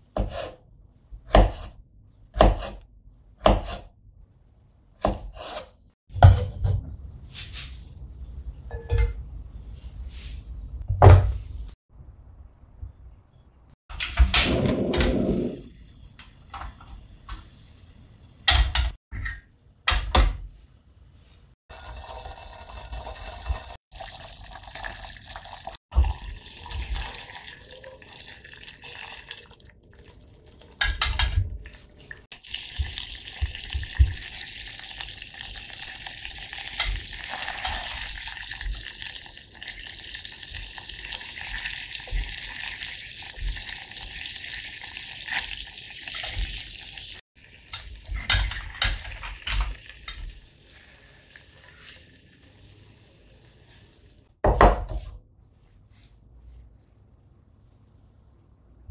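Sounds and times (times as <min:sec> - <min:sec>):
garlic sizzling in oil: 0:32.4 - 0:53.7.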